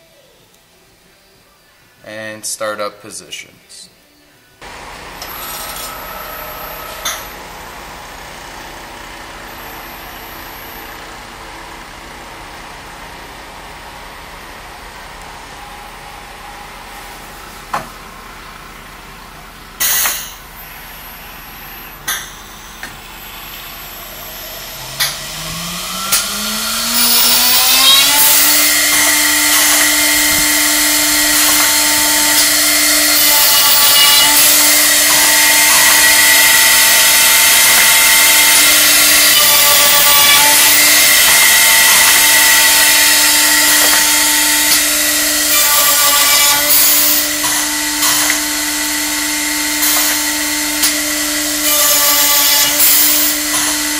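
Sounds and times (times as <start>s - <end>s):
router motor whine: 4.6s - 19.6s, 20.2s - 53.9s
drill bit boring wood: 22.8s - 53.9s.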